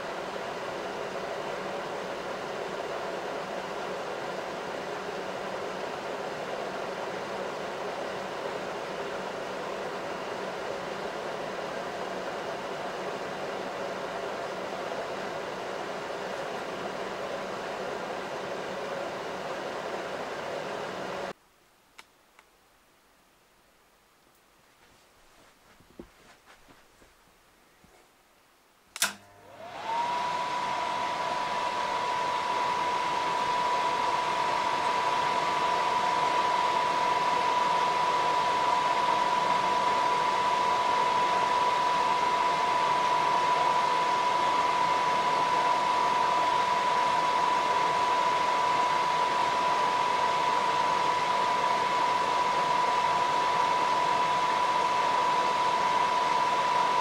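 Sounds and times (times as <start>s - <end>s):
cooling fan whine: 0.0s - 21.4s, 28.9s - 57.0s
projector switch click: 29.0s - 29.4s.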